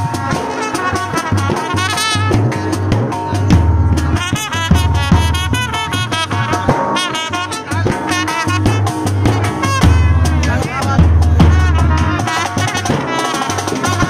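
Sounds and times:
steady drum beat: 0.0 - 14.0
trumpets playing melody: 0.0 - 14.0
sousaphone bass notes: 2.4 - 6.9, 7.7 - 12.3.

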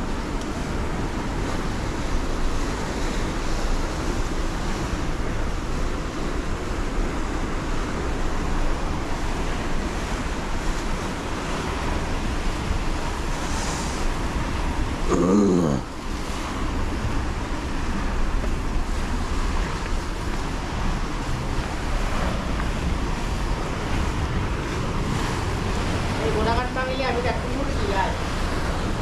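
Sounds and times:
water rushing over spillway: 0.0 - 29.0.

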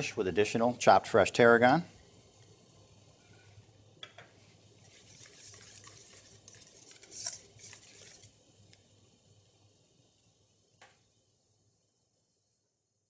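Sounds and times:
spoon scraping metal bowl: 4.8 - 8.3.

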